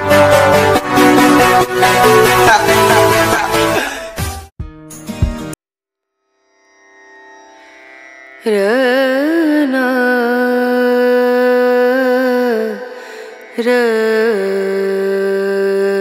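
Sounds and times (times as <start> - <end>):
ornamented melody line: 0.0 - 4.3.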